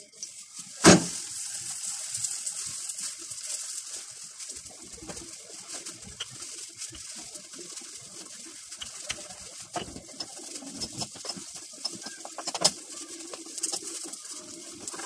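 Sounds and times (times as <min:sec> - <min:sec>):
pigeon cooing: 0:04.7 - 0:15.0.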